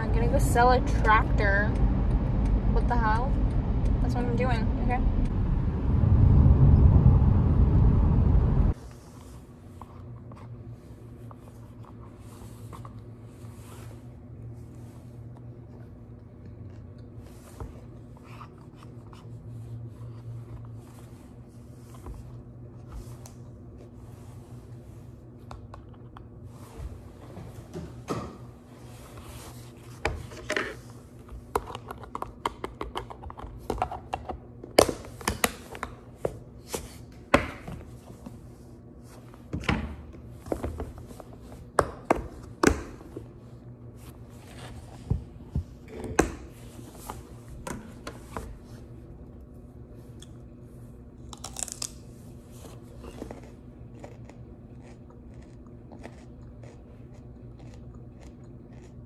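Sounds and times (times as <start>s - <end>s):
low hum: 0.0s - 27.2s.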